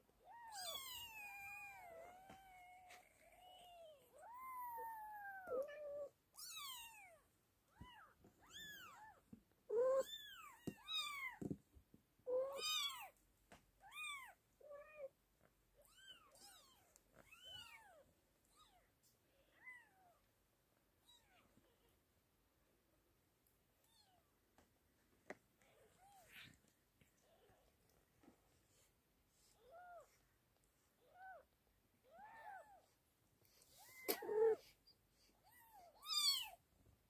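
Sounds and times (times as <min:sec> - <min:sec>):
kittens mewing: 0:09.7 - 0:11.4, 0:33.8 - 0:34.6.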